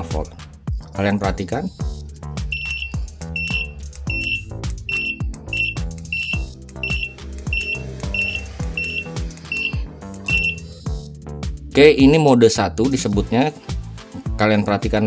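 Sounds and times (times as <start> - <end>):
background music with steady beat: 0.0 - 15.0
buzzer short high beeps: 2.5 - 10.7.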